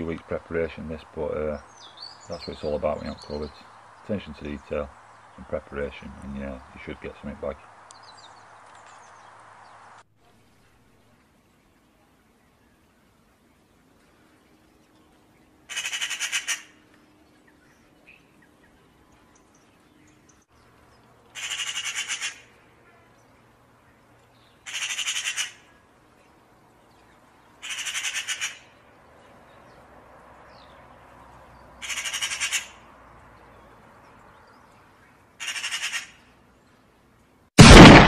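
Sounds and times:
magpie chattering: 0:15.7 - 0:16.7, 0:21.4 - 0:22.5, 0:24.7 - 0:25.6, 0:27.6 - 0:28.7, 0:31.8 - 0:32.8, 0:35.4 - 0:36.2
loud boom: 0:37.6 - 0:38.0.

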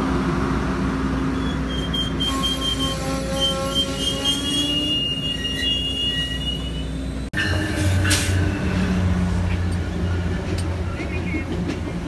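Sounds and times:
passing train drone: 0:00.0 - 0:12.0
train cars rolling on rails: 0:00.0 - 0:12.0
high wheel squeal: 0:01.3 - 0:08.9.

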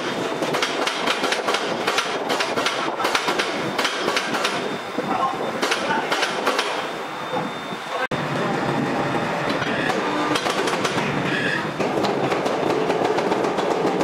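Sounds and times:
crane hoist rattling: 0:09.5 - 0:14.0.

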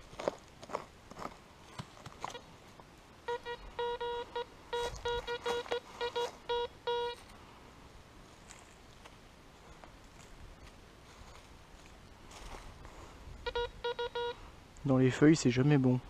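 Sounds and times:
metal detector beeping: 0:02.2 - 0:02.5, 0:03.2 - 0:07.3, 0:13.4 - 0:14.4.

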